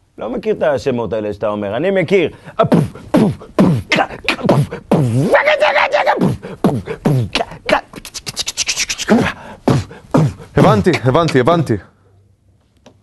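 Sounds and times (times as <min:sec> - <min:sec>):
man beatboxing: 0:02.6 - 0:11.5.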